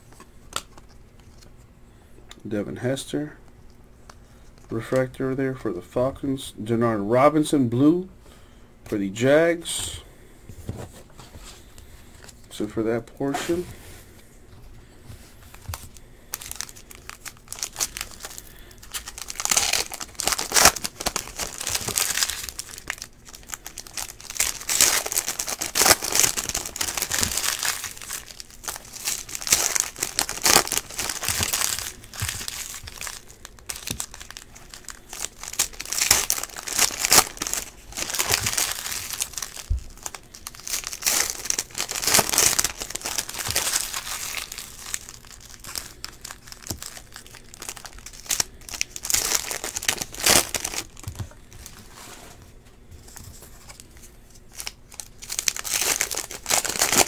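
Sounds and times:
foil wrappers tearing and crinkling: 15.5 - 51.7, 53.4 - 57.0.

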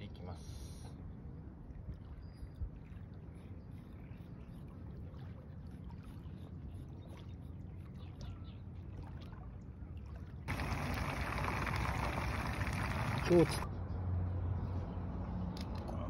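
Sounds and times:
low steady rumble: 9.6 - 13.7
fish deep-frying in oil: 10.5 - 13.6.

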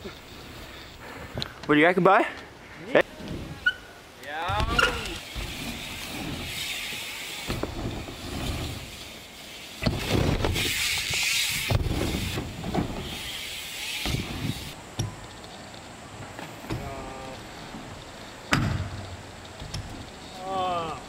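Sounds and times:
bike tyres rolling and hissing: 0.0 - 21.0
wheels landing thuds: 4.4 - 6.8, 7.4 - 9.0, 9.8 - 15.4, 16.1 - 20.2.

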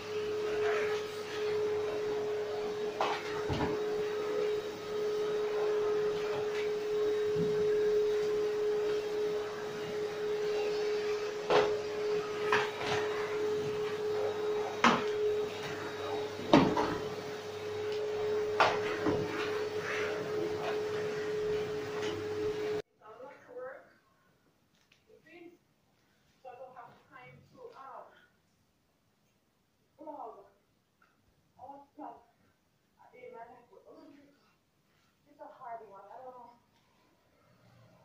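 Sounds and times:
vacuum cleaner humming: 0.0 - 22.8.

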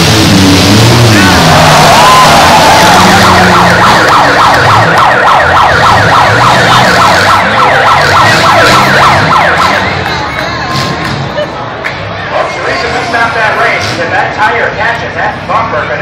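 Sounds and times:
car engines running: 0.0 - 16.0
electronic siren yelping: 1.3 - 10.0.

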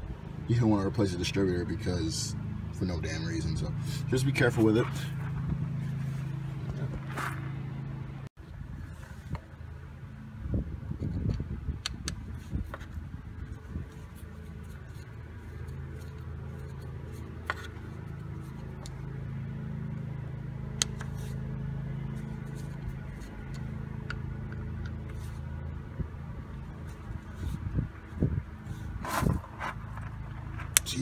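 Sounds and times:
low mechanical hum: 0.0 - 31.0
small metal clicks and scrapes: 13.9 - 19.0.

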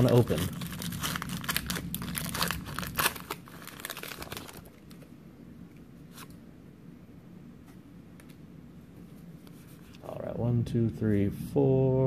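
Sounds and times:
foil wrapper tearing and crinkling: 0.0 - 4.8
faint handling of cards: 7.6 - 10.1.

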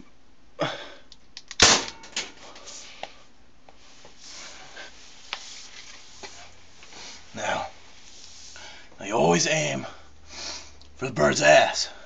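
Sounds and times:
gun handling clicks and knocks: 1.1 - 2.4
bb gun shot: 1.6 - 2.2.

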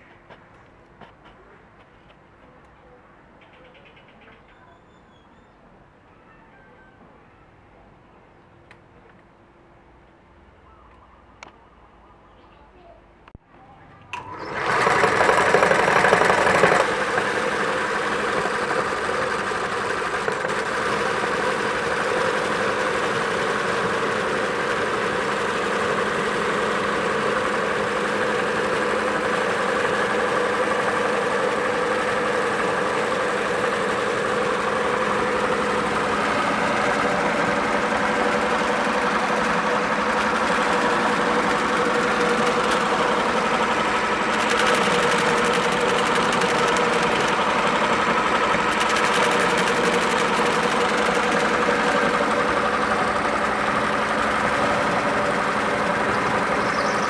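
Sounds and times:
meat grinder grinding: 14.2 - 57.0.

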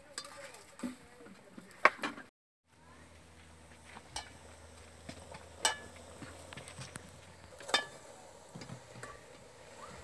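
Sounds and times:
metal utensils clinking on pan: 5.6 - 6.0, 7.6 - 8.1.

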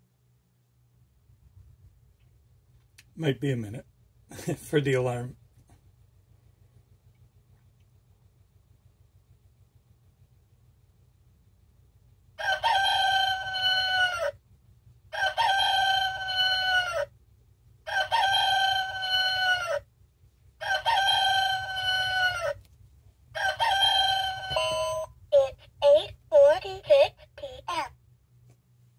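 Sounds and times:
electronic rooster alarm call: 23.4 - 25.7.

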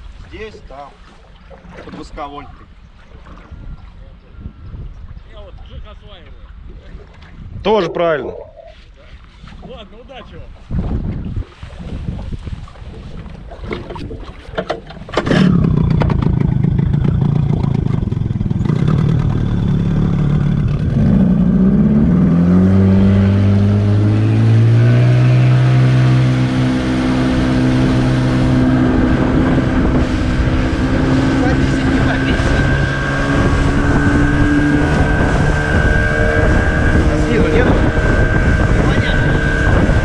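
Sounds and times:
outboard motor running: 10.4 - 40.0
knocks and clatter: 13.7 - 19.6.

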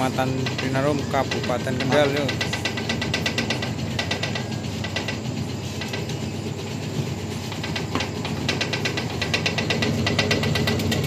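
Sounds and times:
cutter ticking clatter: 0.0 - 11.0
machine motor hum: 0.0 - 11.0.

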